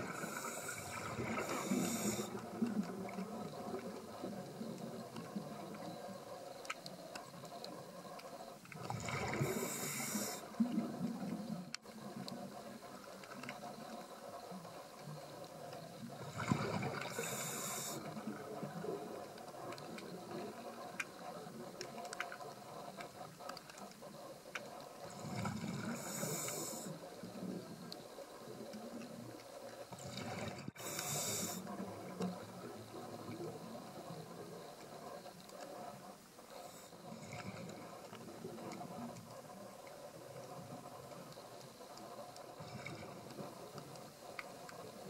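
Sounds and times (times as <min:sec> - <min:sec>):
underwater watery hiss: 0:00.0 - 0:45.0.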